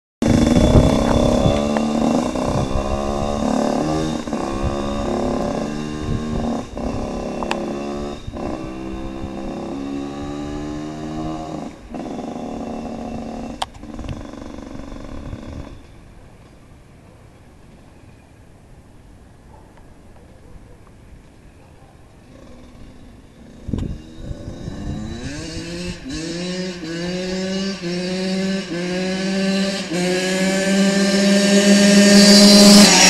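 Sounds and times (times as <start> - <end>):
dirt bike accelerating: 0.2 - 15.9, 22.3 - 33.0.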